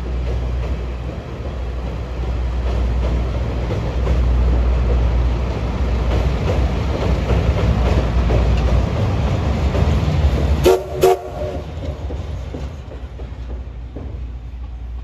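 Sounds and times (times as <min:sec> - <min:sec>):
train rumbling over bridge: 0:00.0 - 0:15.0
train whistle blasts: 0:10.6 - 0:11.6.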